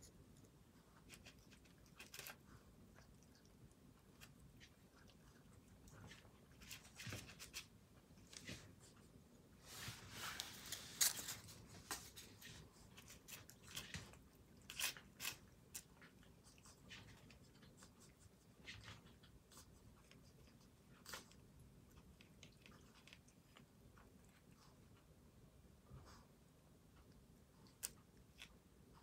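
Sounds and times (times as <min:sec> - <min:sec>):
cat crunching food: 0:00.3 - 0:08.3, 0:10.7 - 0:24.8, 0:27.6 - 0:28.6.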